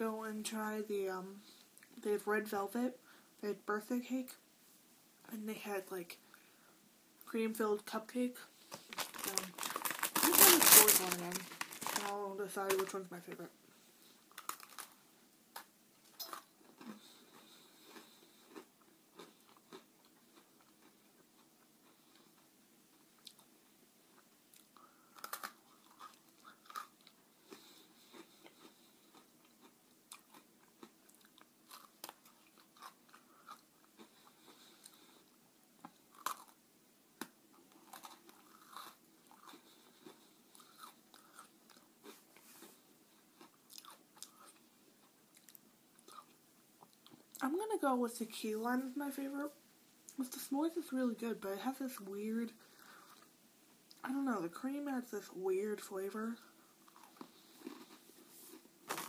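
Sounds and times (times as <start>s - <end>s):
person chewing: 8.8s - 12.1s, 14.2s - 23.5s, 24.1s - 36.6s, 37.2s - 47.4s, 56.8s - 59.0s
cookie crunching: 8.8s - 13.1s, 14.3s - 23.5s, 24.2s - 35.1s, 35.8s - 36.6s, 56.8s - 59.0s.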